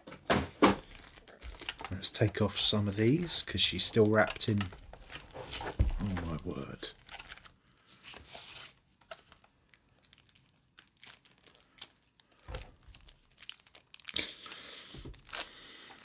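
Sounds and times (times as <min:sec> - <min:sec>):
plastic wrap crinkling and tearing: 0:00.8 - 0:16.0.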